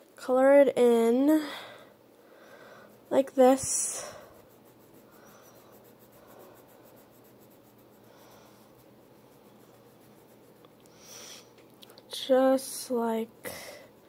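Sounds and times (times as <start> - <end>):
crayon scratching on paper: 2.9 - 14.0.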